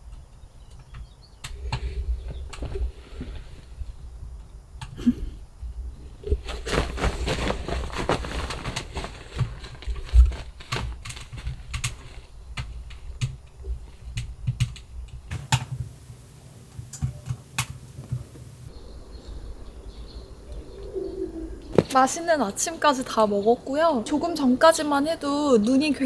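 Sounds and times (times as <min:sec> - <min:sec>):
fabric rustling: 0:06.2 - 0:14.1.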